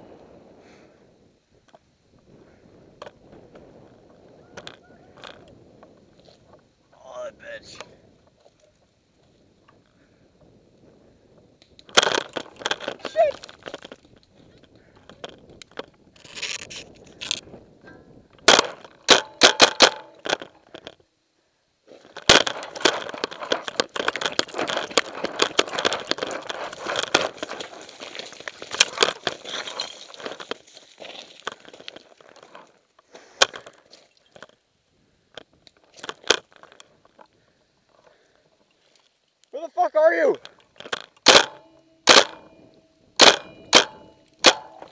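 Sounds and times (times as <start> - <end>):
sharp knocks: 18.4 - 20.4, 41.2 - 42.6, 43.2 - 44.9
footsteps crunching on gravel and leaves: 21.9 - 34.4.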